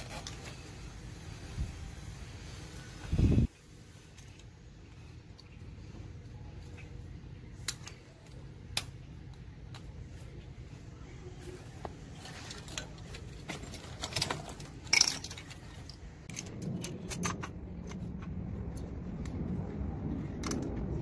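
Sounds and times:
steady low rumble: 0:00.7 - 0:13.5, 0:15.7 - 0:21.0
metal parts clinking: 0:12.2 - 0:17.6.

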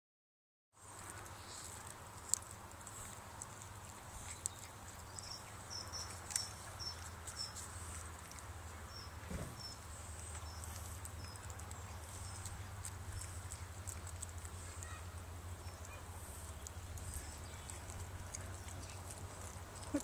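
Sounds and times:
monkeys chewing food: 0:00.8 - 0:20.0
faint low hum: 0:00.9 - 0:20.0.

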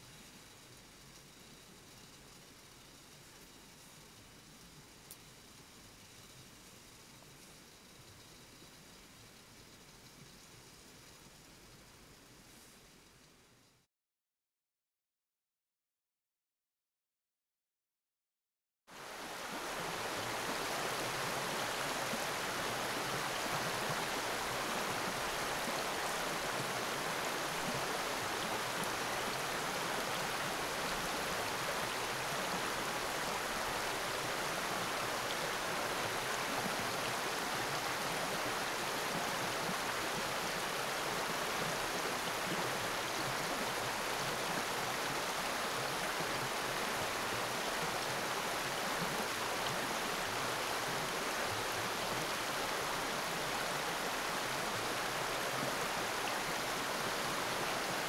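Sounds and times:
creek water running: 0:00.0 - 0:13.0, 0:18.9 - 0:58.0.

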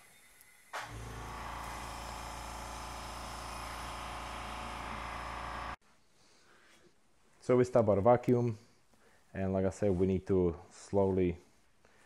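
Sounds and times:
vacuum pump motor humming: 0:00.9 - 0:05.8.

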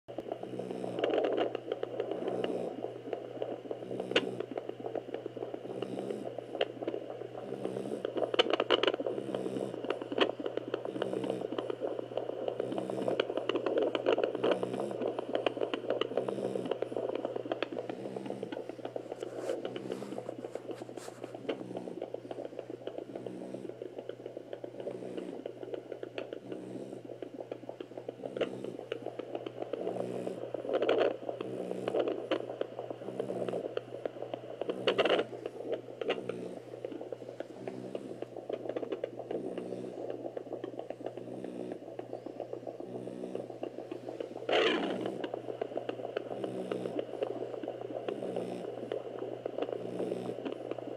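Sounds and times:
probe scraping over fur: 0:16.1 - 0:22.6, 0:34.6 - 0:40.0, 0:41.4 - 0:47.1.

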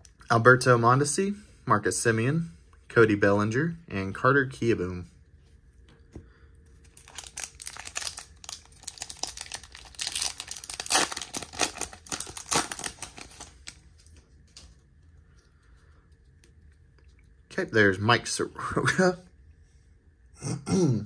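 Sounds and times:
foil wrapper crackling: 0:06.9 - 0:14.1.

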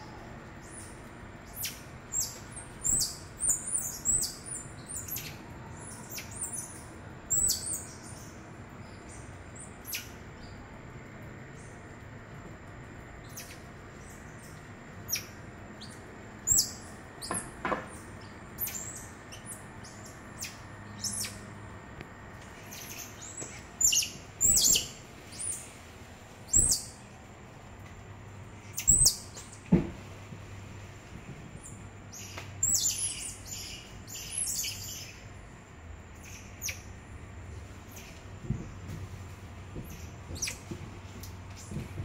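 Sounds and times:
monkeys chirping: 0:22.7 - 0:25.6, 0:26.5 - 0:27.0.

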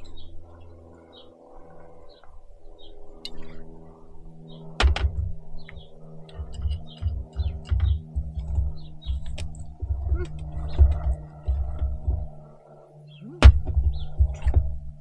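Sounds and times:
small birds chirping: 0:00.0 - 0:15.0
steady low hum: 0:00.0 - 0:15.0
wind rumbling on microphone: 0:04.4 - 0:15.0.

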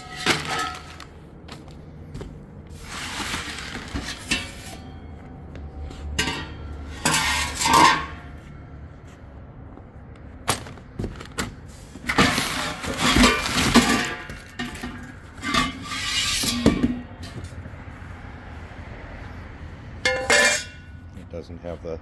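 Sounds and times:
metal pipes knocking and ringing: 0:06.2 - 0:08.2, 0:20.0 - 0:21.1.

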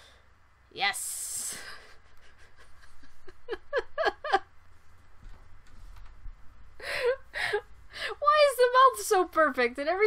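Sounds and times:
woman laughing: 0:01.4 - 0:04.5.

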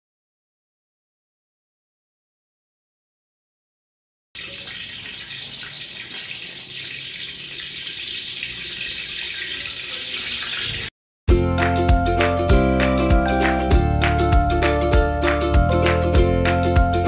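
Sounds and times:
water boiling in a pot: 0:04.4 - 0:10.9
music: 0:11.3 - 0:17.0.

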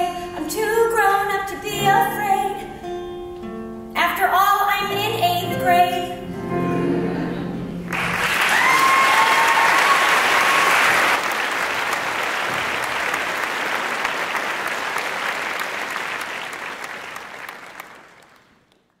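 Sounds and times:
audience applauding: 0:07.9 - 0:19.0
high whoop: 0:08.4 - 0:11.2.

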